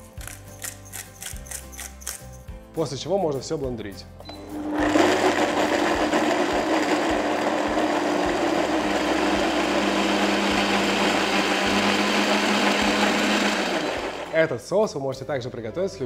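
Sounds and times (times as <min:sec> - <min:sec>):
blender running: 0:04.4 - 0:14.4.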